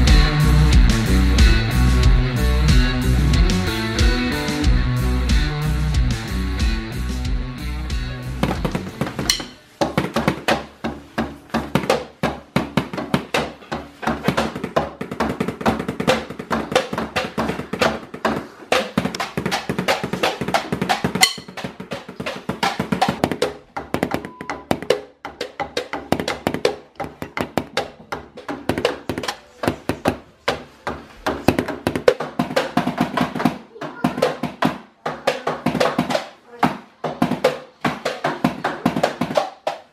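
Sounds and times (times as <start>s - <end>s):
music playing: 0.0s - 9.6s.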